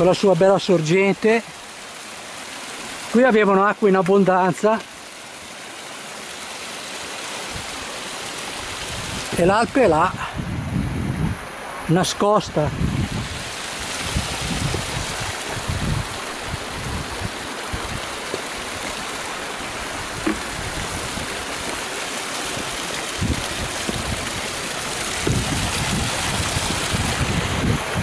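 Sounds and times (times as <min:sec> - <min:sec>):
stream rushing over rocks: 0:00.0 - 0:10.6, 0:11.3 - 0:28.0
wind rumbling on microphone: 0:07.4 - 0:11.6, 0:12.5 - 0:28.0.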